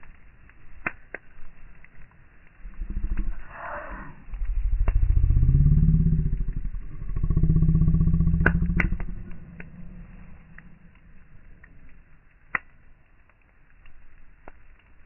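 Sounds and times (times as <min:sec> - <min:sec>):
wood fire popping: 0:00.0 - 0:15.0
engine revving: 0:04.7 - 0:10.1.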